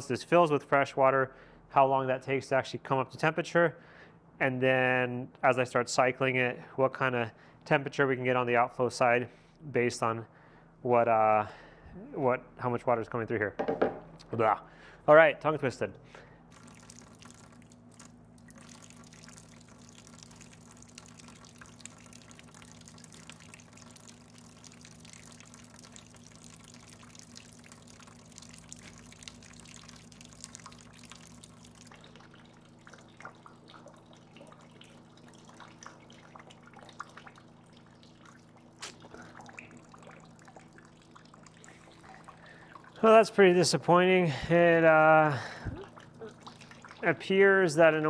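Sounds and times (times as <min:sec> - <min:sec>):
steady low hum: 0:13.9 - 0:48.0
water dripping into plastic bucket: 0:16.5 - 0:43.7, 0:45.4 - 0:47.8.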